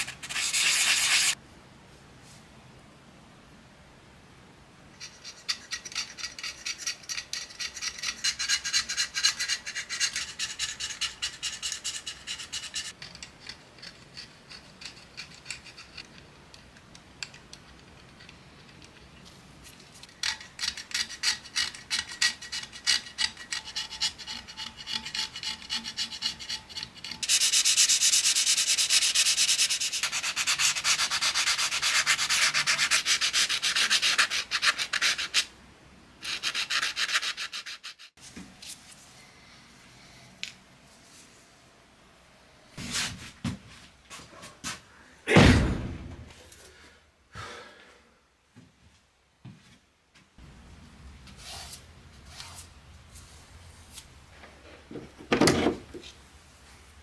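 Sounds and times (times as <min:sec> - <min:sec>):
knife blade scraping paint: 0:00.0 - 0:01.4, 0:20.2 - 0:35.5
sandpaper rubbing metal: 0:00.0 - 0:01.4, 0:05.0 - 0:13.0, 0:20.9 - 0:35.5, 0:36.2 - 0:38.2.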